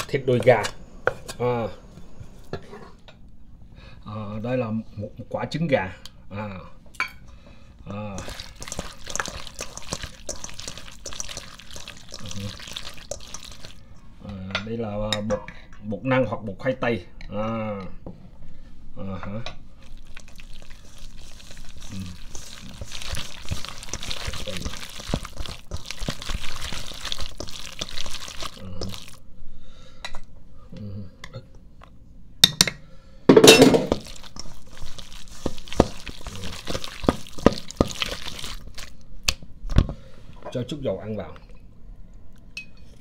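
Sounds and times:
hands mixing wet food in bowl: 7.9 - 14.3, 19.8 - 29.2, 33.4 - 40.0.

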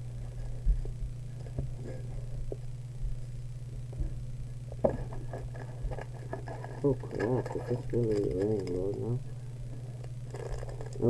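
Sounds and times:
low electrical hum: 0.0 - 11.0
wrapper crinkling: 5.3 - 9.2, 10.0 - 11.0.

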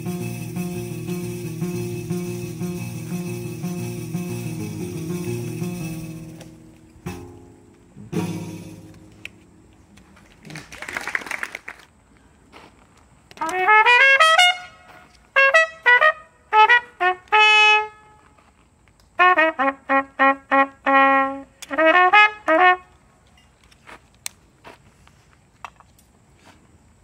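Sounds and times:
solo brass instrument playing: 13.4 - 18.2, 19.2 - 23.0.

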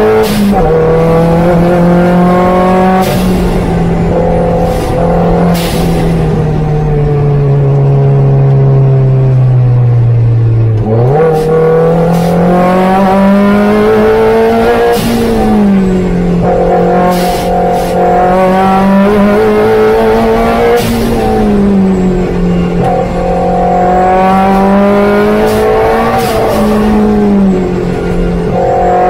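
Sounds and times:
car engine revving: 0.0 - 29.0.

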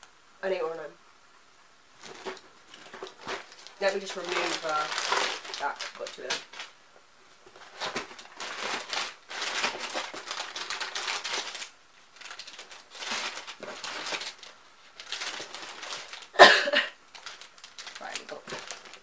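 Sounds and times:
cardboard flap tearing: 2.0 - 6.7, 7.5 - 16.4, 17.1 - 19.0
packets rustling and crinkling: 2.0 - 19.0
person coughing: 16.4 - 17.0.

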